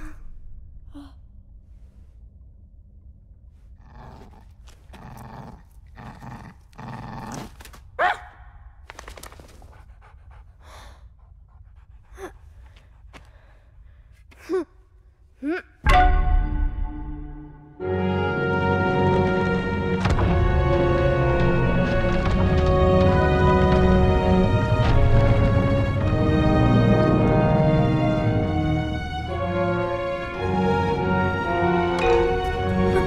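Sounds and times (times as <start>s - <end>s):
dogs sniffing and panting: 9.0s - 13.3s.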